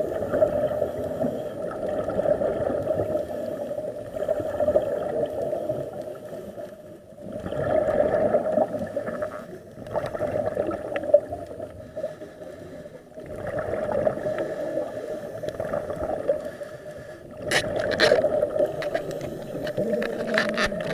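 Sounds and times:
gurgling exhaled bubbles: 0.0s - 6.4s, 7.1s - 11.9s, 13.2s - 16.6s, 17.2s - 20.9s
underwater regulator breathing: 11.6s - 20.9s.

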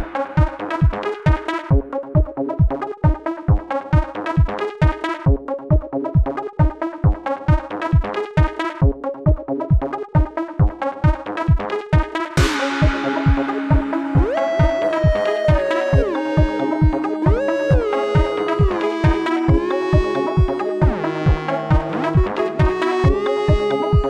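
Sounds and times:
electronic dance music: 0.0s - 1.9s, 10.2s - 24.0s
synthesizer chords: 0.0s - 6.2s, 11.1s - 24.0s
steady kick drum: 0.0s - 24.0s.

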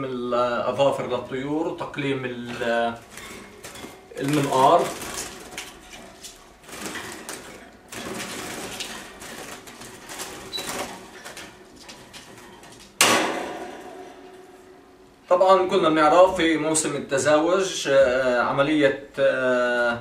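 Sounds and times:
birds fluttering in a cage: 0.6s - 14.7s
wire cage rattling: 2.5s - 15.0s.

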